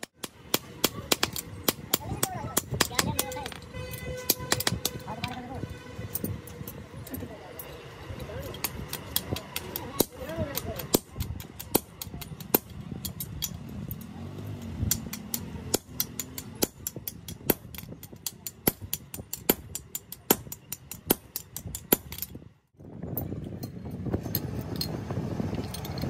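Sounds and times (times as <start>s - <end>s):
hammer striking steel on anvil: 14.6s - 22.3s.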